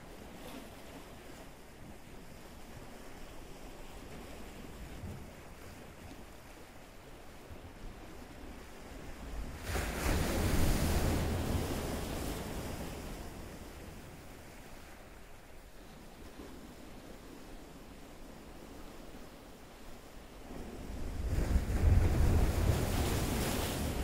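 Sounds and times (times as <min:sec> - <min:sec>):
ocean surf washing: 0:20.4 - 0:24.0.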